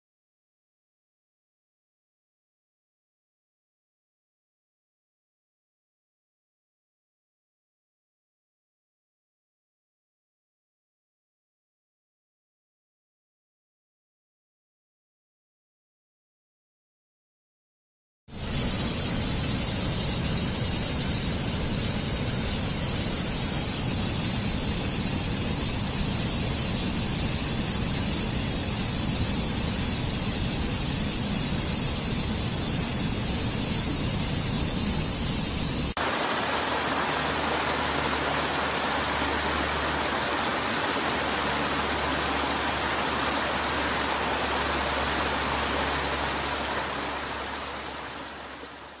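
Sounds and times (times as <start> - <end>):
water rushing over rocks: 35.8 - 49.0.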